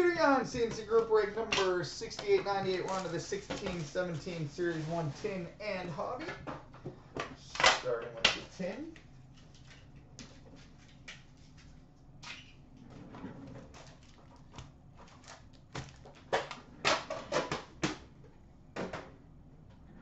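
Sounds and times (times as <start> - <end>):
foil packs rustling: 2.5 - 5.1.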